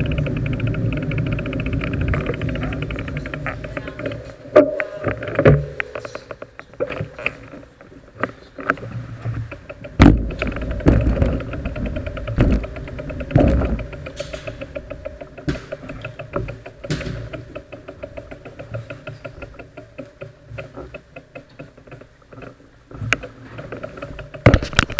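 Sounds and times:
bicycle freewheel hub ticking: 0.0s - 6.6s, 8.7s - 24.9s
heavy thumps: 8.7s - 24.9s.

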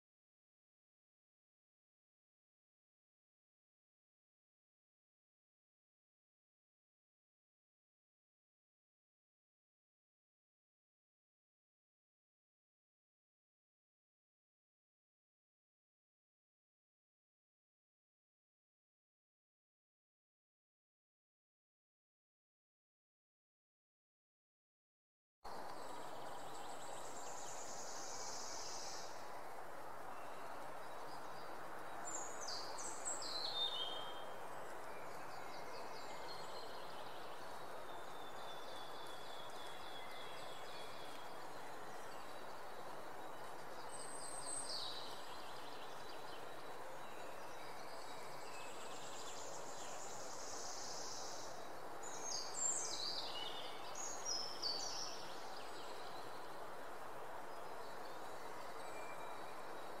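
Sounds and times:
steady background hiss: 25.5s - 60.0s.

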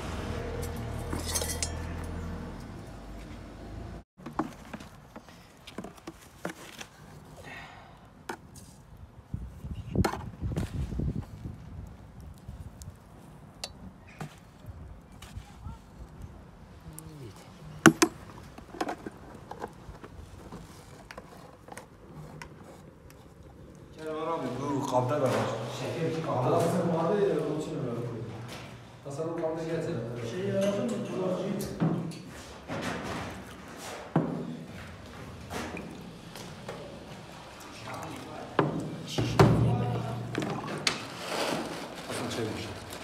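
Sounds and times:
hand tools clinking and scraping: 0.6s - 2.4s.

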